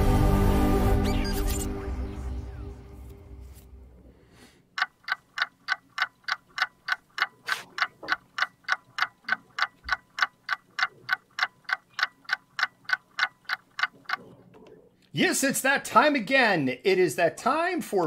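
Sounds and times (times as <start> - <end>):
clock ticking fast: 4.7 - 14.4.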